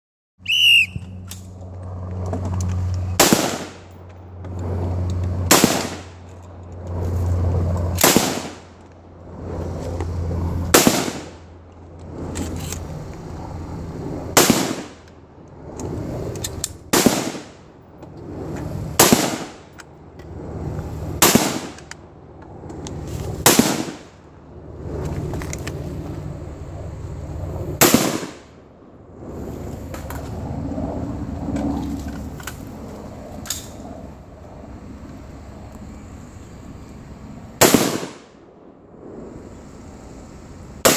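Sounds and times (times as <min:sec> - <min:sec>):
rifle shots: 0:03.2 - 0:04.0, 0:05.4 - 0:06.2, 0:08.0 - 0:08.7, 0:10.7 - 0:11.4, 0:14.3 - 0:15.0, 0:16.9 - 0:17.6, 0:19.0 - 0:19.6, 0:21.2 - 0:21.9, 0:23.4 - 0:24.1, 0:27.8 - 0:28.5, 0:37.6 - 0:38.4.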